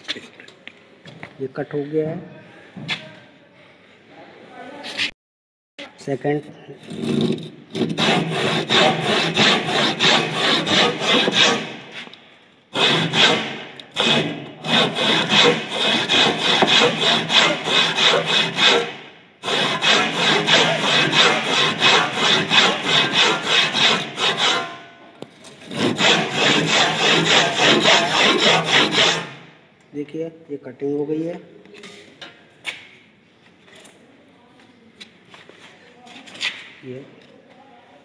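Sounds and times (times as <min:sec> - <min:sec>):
hand saw cutting wood: 0:06.8 - 0:11.9, 0:12.7 - 0:24.8, 0:25.6 - 0:29.5.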